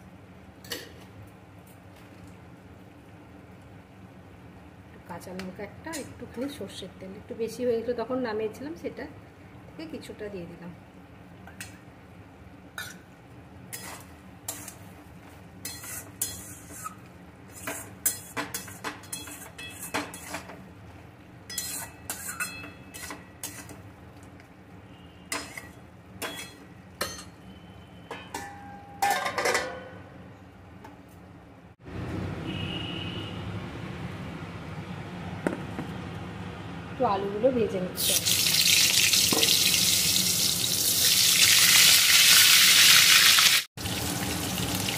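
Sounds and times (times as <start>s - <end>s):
metal spatula scraping pan: 13.7s - 14.9s, 15.6s - 20.5s, 21.5s - 23.8s.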